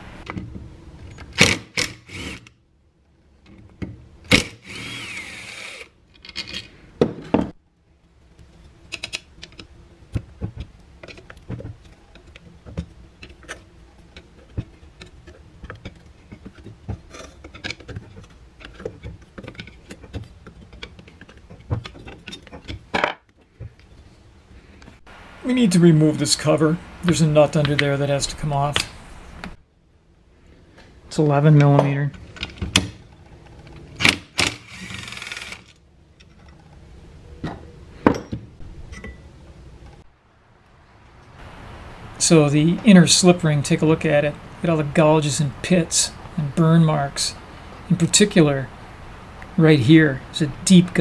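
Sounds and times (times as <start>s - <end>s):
metallic clicks and scrapes: 10.6s - 23.9s
impact driver running: 34.0s - 35.7s.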